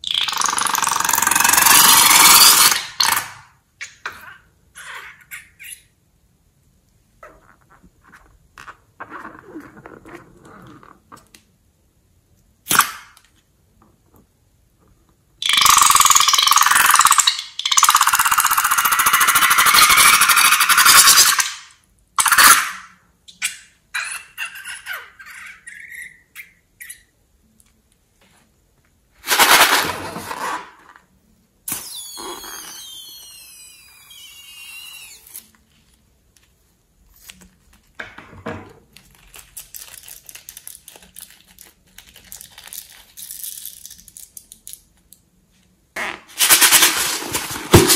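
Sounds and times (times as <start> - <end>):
balloon neck squealing: 0.0 - 3.3, 31.7 - 35.5
air hissing out of balloon: 31.7 - 35.3.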